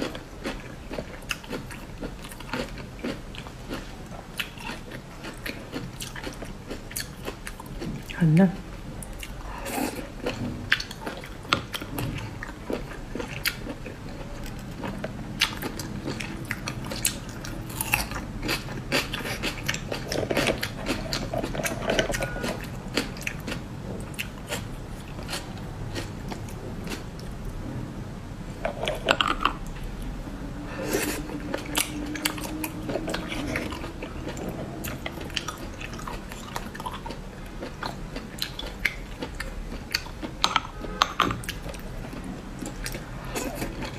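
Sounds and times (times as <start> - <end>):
wet chewing and sucking: 9.0 - 27.3.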